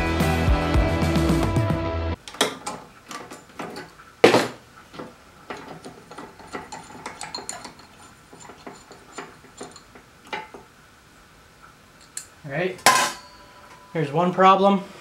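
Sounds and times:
light metallic clicks and clinks: 0:05.5 - 0:10.6, 0:12.0 - 0:12.4.

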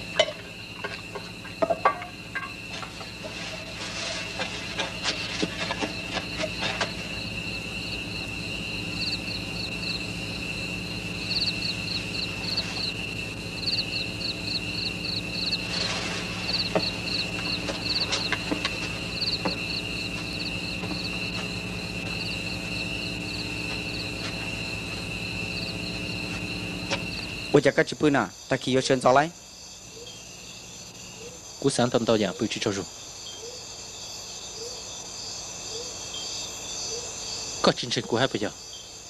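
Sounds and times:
low steady hum: 0:00.0 - 0:27.7
insect chirps: 0:00.0 - 0:39.0
insect trilling: 0:00.0 - 0:39.0.

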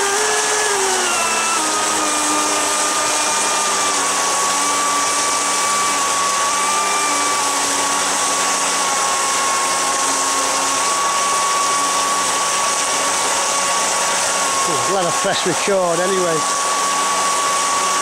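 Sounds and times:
electric motor and impeller whine: 0:00.0 - 0:18.0
water jet rushing: 0:02.4 - 0:18.0.

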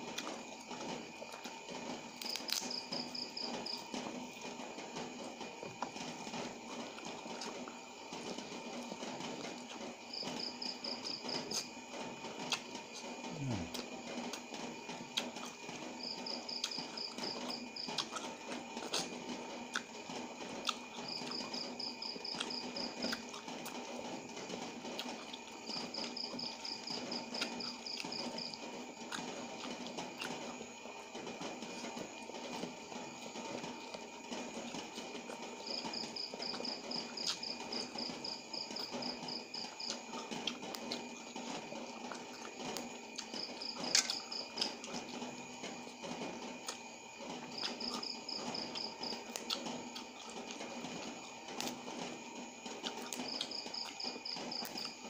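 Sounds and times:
faint hum: 0:00.0 - 0:55.0
cricket chirping: 0:00.3 - 0:55.0
chewing and mouth clicks: 0:02.2 - 0:02.7, 0:16.6 - 0:19.9, 0:22.3 - 0:23.8, 0:29.0 - 0:30.6, 0:39.6 - 0:45.2, 0:46.6 - 0:46.8, 0:47.4 - 0:51.8, 0:52.7 - 0:54.9.

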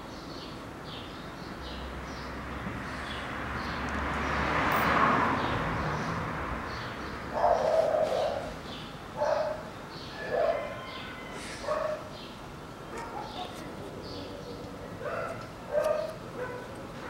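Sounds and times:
dog barking: 0:07.3 - 0:08.5, 0:09.2 - 0:10.8, 0:11.6 - 0:12.1, 0:12.9 - 0:13.6, 0:15.0 - 0:17.0.

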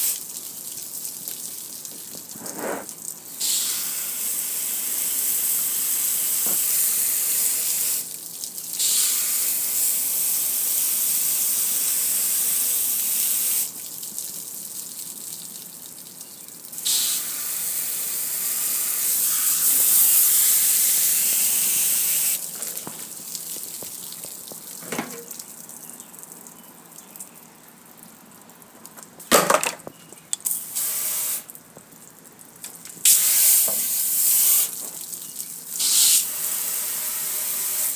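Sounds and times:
hose spray hissing on metal grill: 0:00.0 - 0:00.2, 0:02.2 - 0:08.1, 0:08.8 - 0:13.7, 0:16.8 - 0:23.1, 0:30.6 - 0:31.5, 0:33.0 - 0:35.1, 0:35.7 - 0:37.9.

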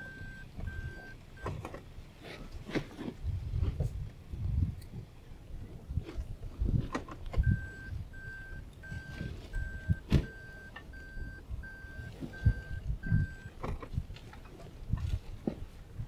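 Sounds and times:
electronic beeps: 0:00.0 - 0:01.6, 0:07.4 - 0:13.6.

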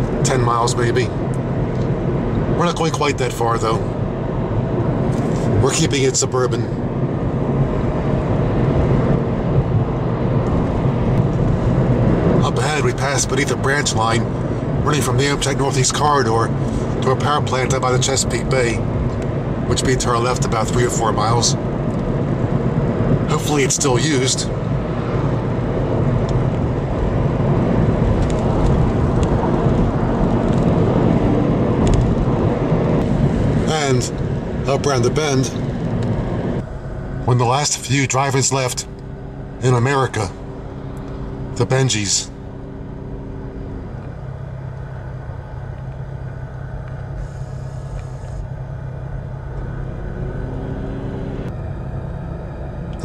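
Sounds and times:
car road and engine rumble: 0:00.0 - 0:53.0.

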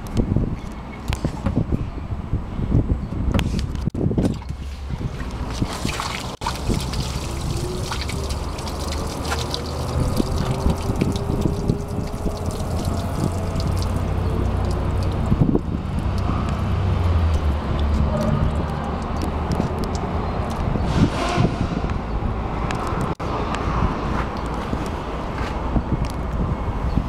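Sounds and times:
water pouring into puddle: 0:04.2 - 0:16.3.

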